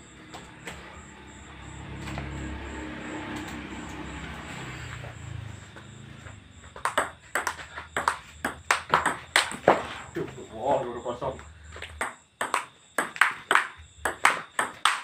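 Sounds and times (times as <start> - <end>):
ping-pong ball clicking off paddles: 6.8 - 9.8, 11.8 - 15.0.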